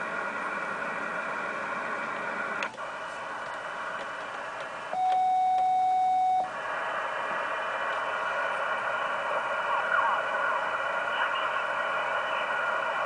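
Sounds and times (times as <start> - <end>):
steady beep: 4.9 - 6.5
radio receiver hiss: 6.6 - 13.0.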